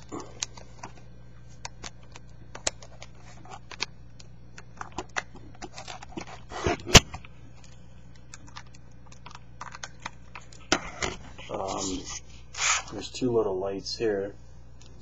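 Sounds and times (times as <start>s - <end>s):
steady low hum: 0.0s - 15.0s
plastic clicks and rustles: 1.6s - 11.2s
scrape: 11.4s - 13.0s.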